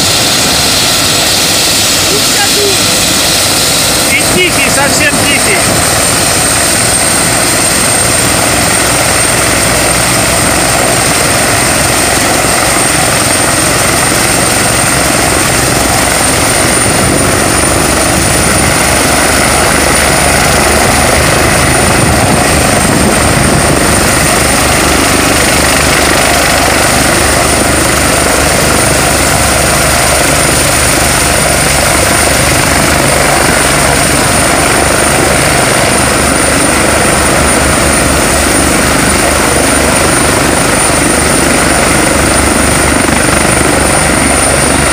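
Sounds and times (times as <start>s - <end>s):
helicopter rotor noise: 0.0s - 44.9s
high turbine whine: 0.0s - 44.9s.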